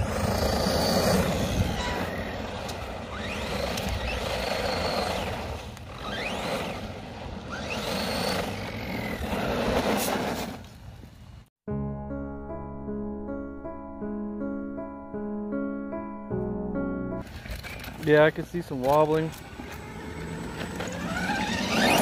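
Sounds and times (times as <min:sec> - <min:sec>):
electric motor whining: 0:00.0 - 0:10.3, 0:19.3 - 0:22.0
tyres on loose dirt: 0:00.0 - 0:11.4, 0:17.2 - 0:22.0.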